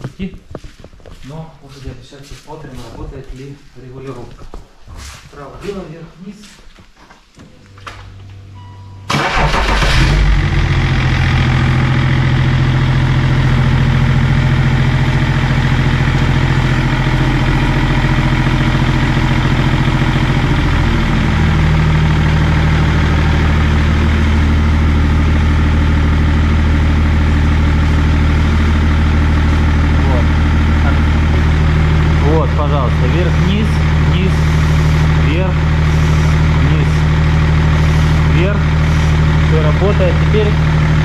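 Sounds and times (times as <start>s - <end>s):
diesel engine starting and idling: 9.0s - 41.0s.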